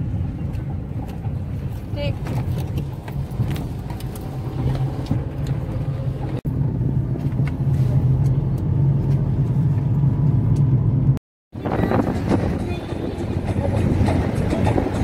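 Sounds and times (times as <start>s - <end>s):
car road and engine rumble: 0.0s - 15.0s.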